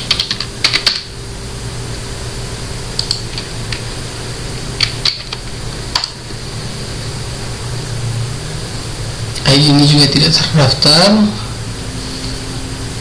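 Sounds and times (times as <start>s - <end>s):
low hum and hiss: 0.0s - 13.0s.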